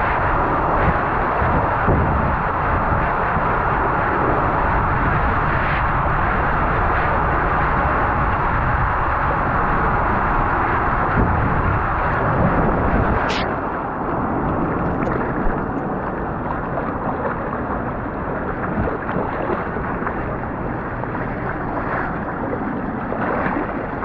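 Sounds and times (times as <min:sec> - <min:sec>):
wind buffeting microphone: 0:00.0 - 0:24.0
water splashing into pool: 0:14.6 - 0:24.0.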